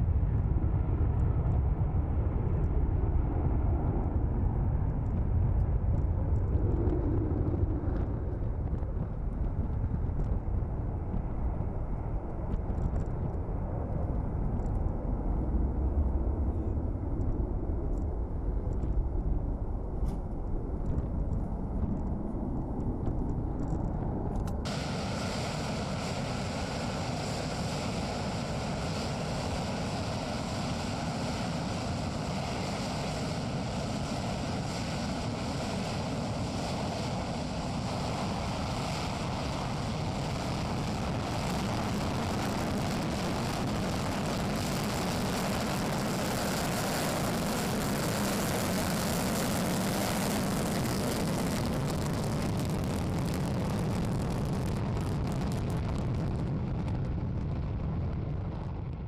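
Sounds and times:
jet aircraft taking off: 0.0s - 59.0s
rushing jet noise: 24.6s - 55.7s.

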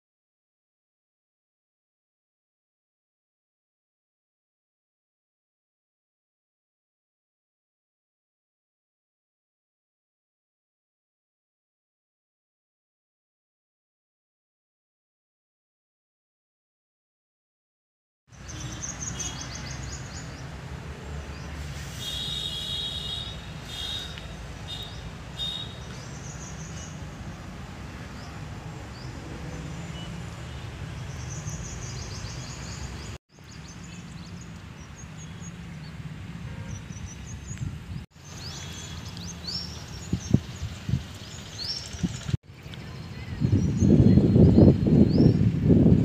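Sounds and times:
birds chirping and trilling: 18.3s - 36.0s, 36.6s - 45.5s.

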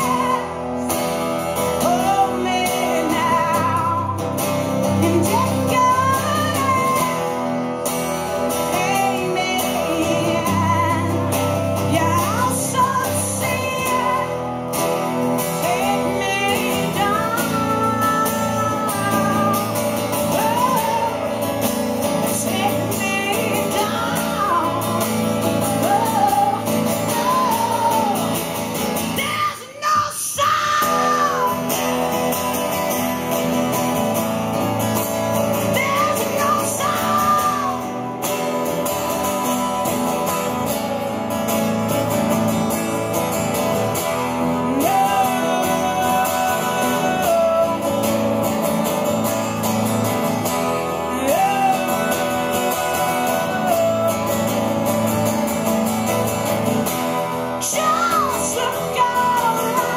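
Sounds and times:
woman singing: 0.0s - 33.8s, 34.5s - 41.1s, 43.7s - 49.7s, 50.3s - 56.0s, 57.2s - 59.9s
acoustic guitars strumming: 0.0s - 59.9s.

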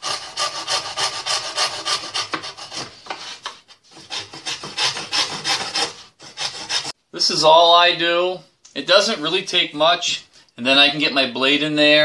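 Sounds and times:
coping saw cutting wood: 0.0s - 7.0s.

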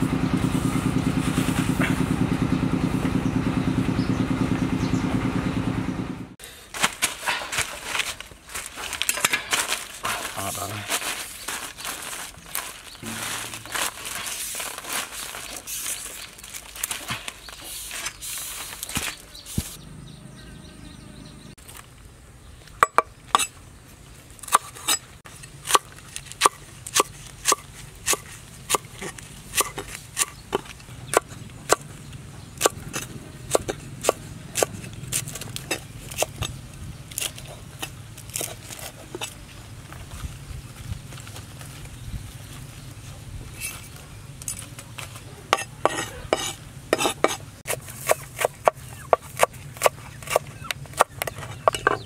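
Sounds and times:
beetles buzzing and scratching: 6.4s - 20.2s, 24.1s - 52.0s
cleaver chopping on wooden board: 45.5s - 52.0s.

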